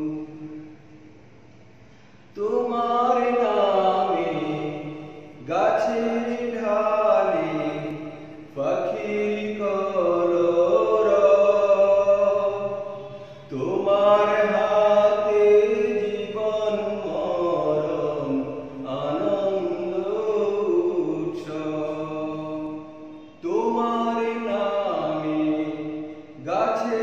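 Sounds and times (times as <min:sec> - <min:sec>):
man singing devotional song: 0:00.0 - 0:00.7, 0:02.3 - 0:27.0.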